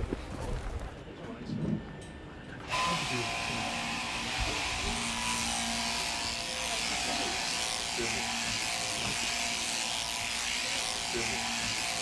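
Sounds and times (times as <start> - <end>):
shearing clippers buzzing: 2.6 - 12.0.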